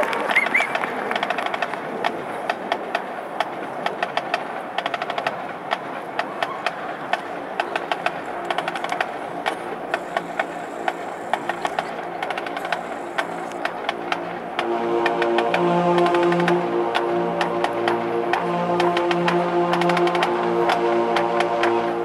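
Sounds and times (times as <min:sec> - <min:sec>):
band playing low held notes: 0:07.8 - 0:22.0.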